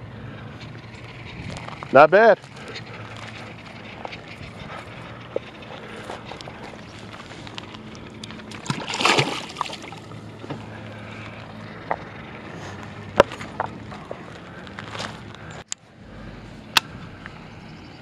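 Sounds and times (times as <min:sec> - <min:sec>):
fish splashing into water: 0:08.4 - 0:10.1.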